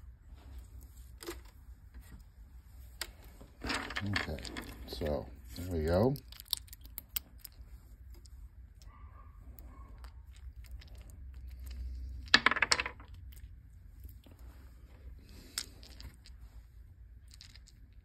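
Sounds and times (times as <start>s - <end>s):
dice clattering in hand: 3.6s - 5.2s, 10.4s - 13.5s, 15.3s - 16.4s, 17.2s - 18.0s.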